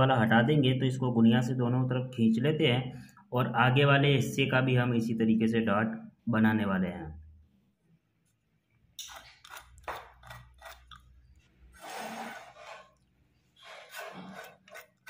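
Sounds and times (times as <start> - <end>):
scraping strokes on wood: 11.7 - 15.0.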